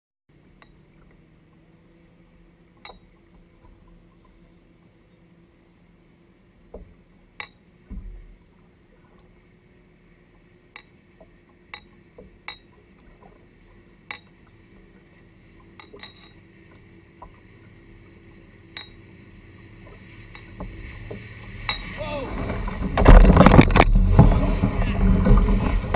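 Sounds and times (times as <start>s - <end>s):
boat motor rumble: 0.3s - 25.9s.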